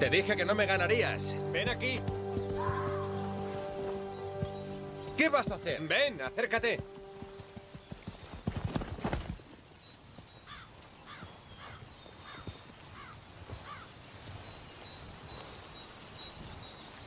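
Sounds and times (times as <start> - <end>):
horse hooves clopping: 1.4 - 16.8
crow cawing: 2.5 - 3.2, 10.5 - 12.4, 13.0 - 13.9.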